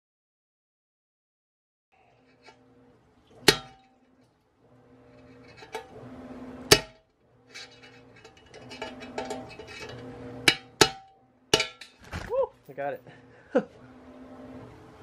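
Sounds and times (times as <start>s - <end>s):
steady hiss and low hum: 2.0s - 15.0s
sharp metallic knocks: 10.4s - 12.0s.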